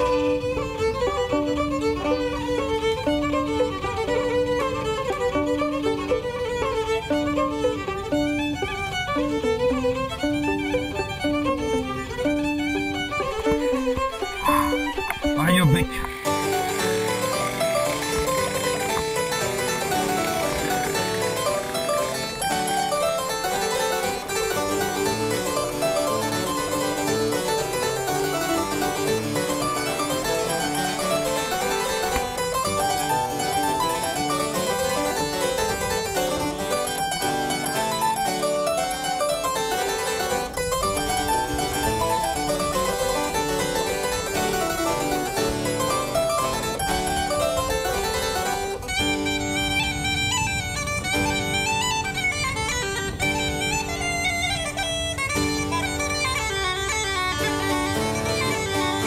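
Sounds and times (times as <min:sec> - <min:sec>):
background music: 0:11.2 - 0:49.4.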